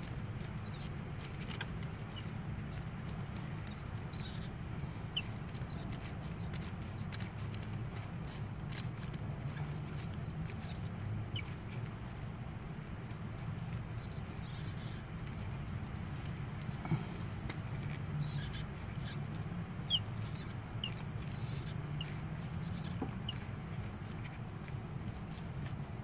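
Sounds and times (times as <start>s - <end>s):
steady low hum: 0.0s - 26.0s
glow plug threads squeaking: 0.5s - 1.0s, 3.2s - 4.5s, 13.4s - 15.5s, 17.6s - 24.4s.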